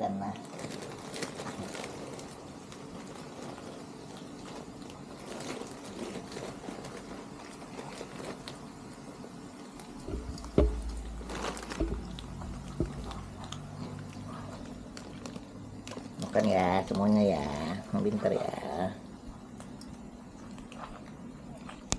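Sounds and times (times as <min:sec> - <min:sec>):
kittens crunching kibble: 0:00.2 - 0:21.9
dry cat food rattling onto plate: 0:10.0 - 0:16.2
loud thump: 0:10.1 - 0:12.2.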